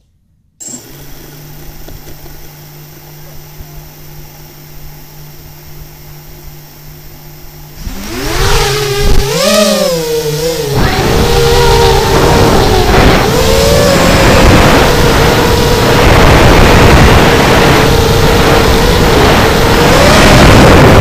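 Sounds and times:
quadcopter motors whining: 0.6 - 21.0.

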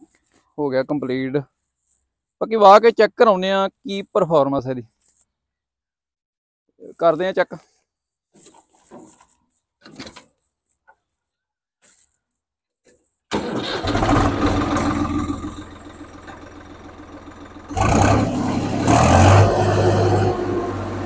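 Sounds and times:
tractor diesel engine starting and revving: 13.3 - 21.0.

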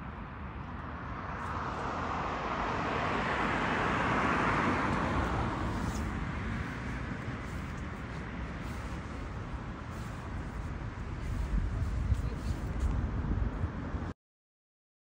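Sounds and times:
car passing: 0.0 - 14.1.

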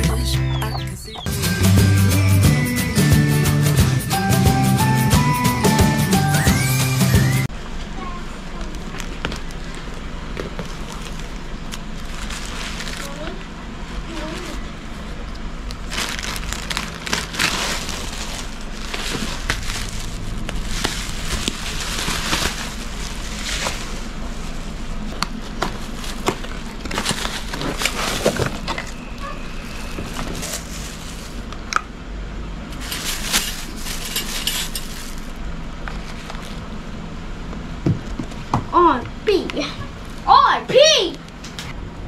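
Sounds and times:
steady low hum: 7.4 - 42.0
plastic packaging crinkling: 8.6 - 31.5, 32.8 - 36.7.

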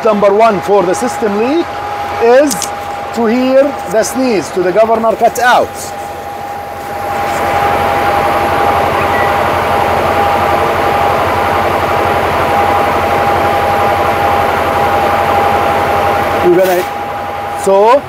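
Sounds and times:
diesel truck engine running: 0.0 - 18.0
steady high tone: 3.1 - 11.6.

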